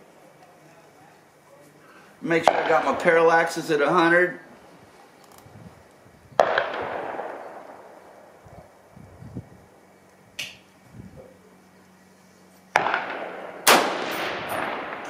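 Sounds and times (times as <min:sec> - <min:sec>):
rifle shot echoing: 0:02.4 - 0:03.4, 0:06.4 - 0:08.3, 0:12.7 - 0:15.0
sharp click: 0:10.4 - 0:10.6.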